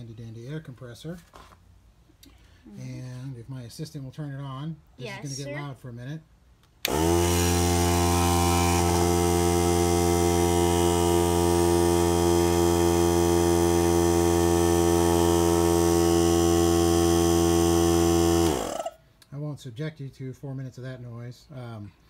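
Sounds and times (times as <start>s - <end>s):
air compressor running: 6.8s - 19.0s.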